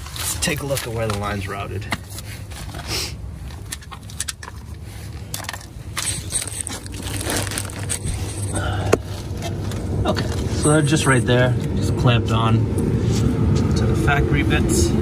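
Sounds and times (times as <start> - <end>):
plastic sheeting crinkling: 0.0 - 2.6, 6.0 - 9.4.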